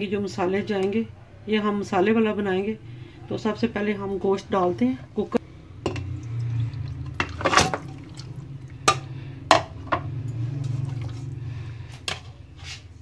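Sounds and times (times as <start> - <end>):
liquid pouring into pot: 5.8 - 9.2
meat thudding into metal pot: 7.1 - 10.1.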